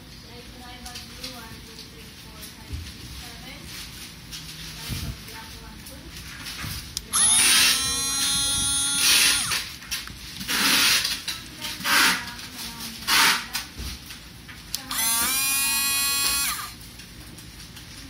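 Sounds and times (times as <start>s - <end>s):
blender motor whining: 7.0s - 9.7s, 14.7s - 16.8s.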